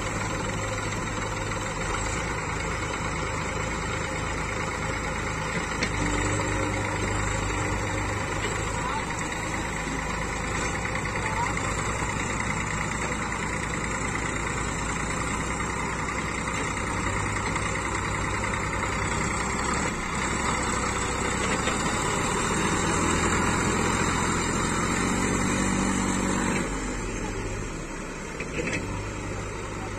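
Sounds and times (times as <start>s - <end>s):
tractor diesel engine under load: 0.0s - 29.9s.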